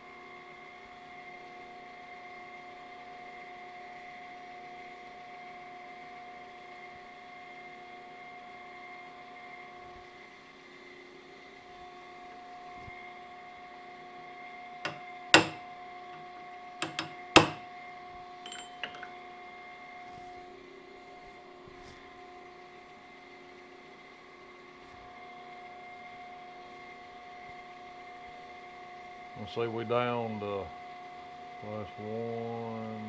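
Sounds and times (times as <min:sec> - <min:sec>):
steady machine hum: 0:14.8 - 0:17.8, 0:18.5 - 0:19.3
hammer striking metal chisel: 0:14.9 - 0:15.7, 0:16.8 - 0:17.7, 0:18.5 - 0:19.1.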